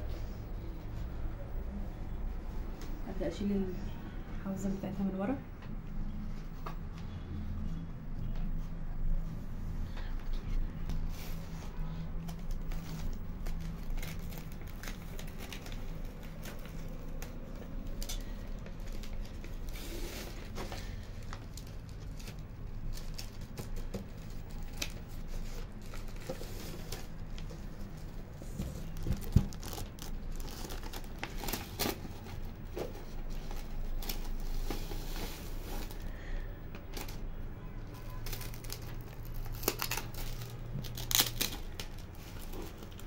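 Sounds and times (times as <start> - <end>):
vinyl sheet crinkling: 8.6 - 43.0.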